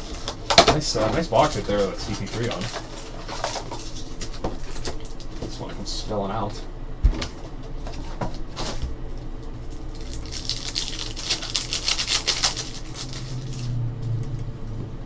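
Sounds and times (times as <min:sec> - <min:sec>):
foil wrapper tearing and crinkling: 0:00.0 - 0:05.4, 0:09.7 - 0:13.8
low steady hum: 0:00.0 - 0:15.0.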